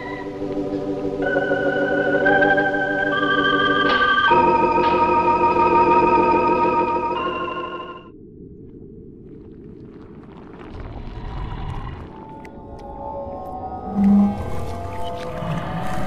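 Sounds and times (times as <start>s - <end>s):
organ chords: 0.0s - 8.1s.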